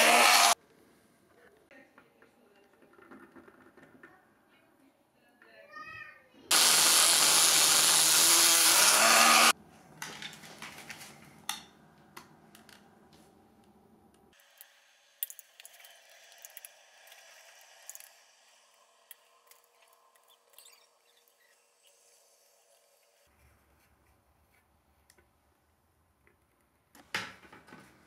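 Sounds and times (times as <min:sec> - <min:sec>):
cutoff disc grinding metal: 0:00.0 - 0:00.6, 0:06.5 - 0:09.5.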